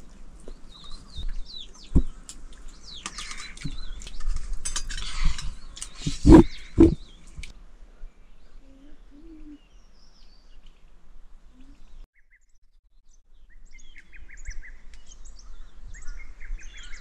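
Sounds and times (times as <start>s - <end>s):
small birds chirping: 0.0s - 7.5s, 8.1s - 12.4s, 13.3s - 17.0s.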